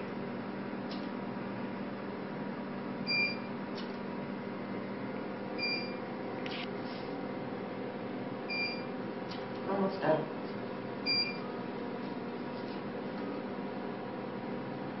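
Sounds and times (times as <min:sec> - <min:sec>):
short electronic beeps: 0:03.1 - 0:03.5, 0:05.6 - 0:06.0, 0:08.5 - 0:08.9, 0:11.1 - 0:11.4.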